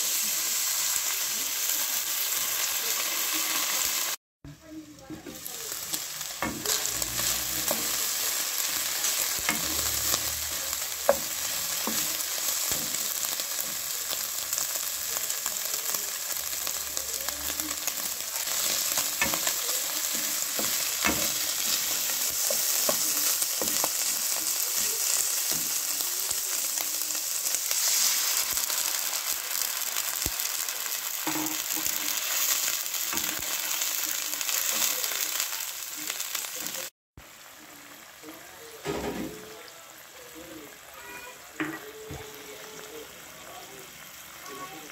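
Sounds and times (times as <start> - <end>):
meat sizzling in oil: 0.0 - 4.2, 5.0 - 44.9
spatula scraping a pan: 5.2 - 13.8, 17.6 - 25.8, 31.2 - 33.5.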